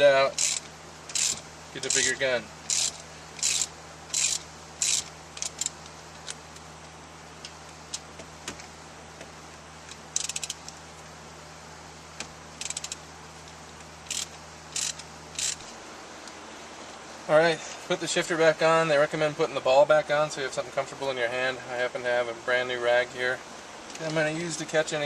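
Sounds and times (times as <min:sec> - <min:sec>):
ratchet wrench clicking: 0:00.3 - 0:06.4, 0:10.2 - 0:10.6, 0:12.6 - 0:13.0, 0:14.0 - 0:15.7.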